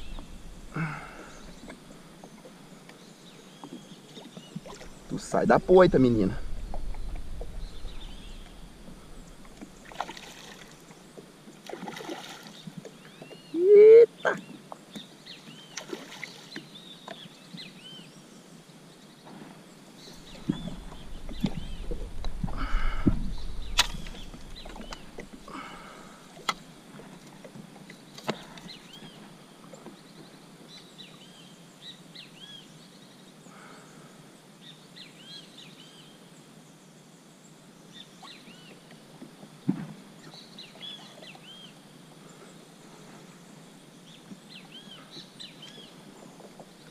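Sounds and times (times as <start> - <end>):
water sloshing around kayak: 0.0 - 13.5, 14.4 - 18.0, 20.0 - 30.4
small birds chirping: 0.0 - 18.3, 18.9 - 26.8.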